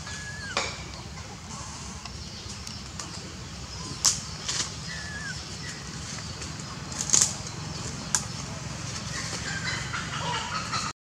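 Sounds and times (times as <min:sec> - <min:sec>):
leaves and twigs rustling: 0:03.8 - 0:09.7.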